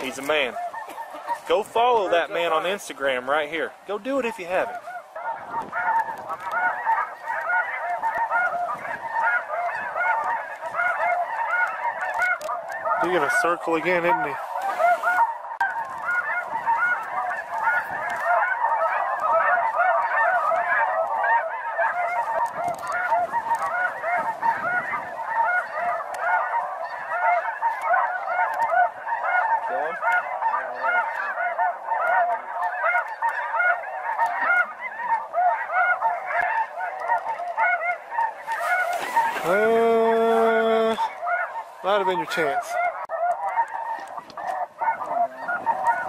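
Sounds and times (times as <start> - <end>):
geese honking chorus: 0.0 - 46.0.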